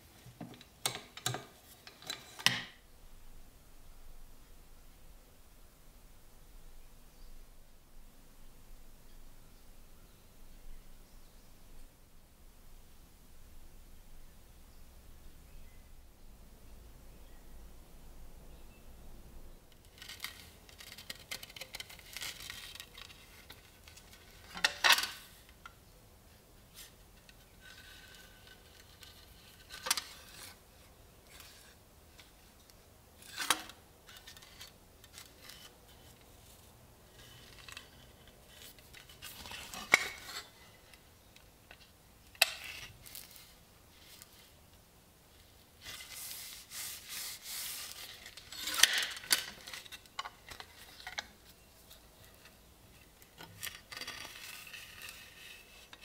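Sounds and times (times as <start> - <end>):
rustling and scraping: 19.7 - 25.6, 26.7 - 56.0.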